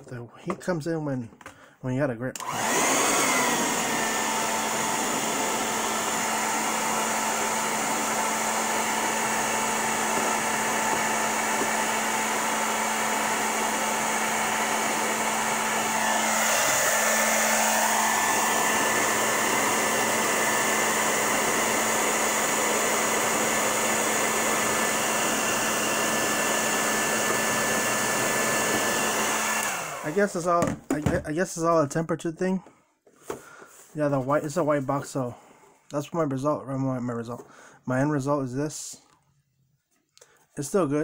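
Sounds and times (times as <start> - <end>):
hair dryer running: 2.4 - 30.8.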